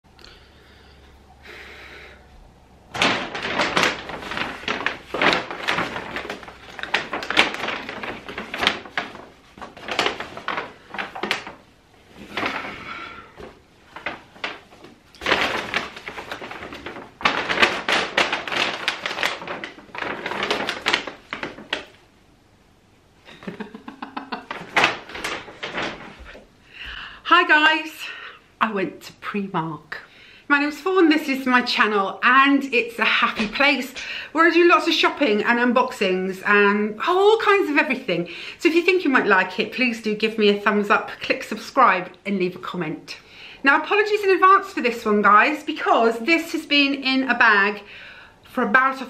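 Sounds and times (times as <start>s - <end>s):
paper bag rustling and crinkling: 2.9s - 22.1s, 23.2s - 26.6s, 31.2s - 38.0s.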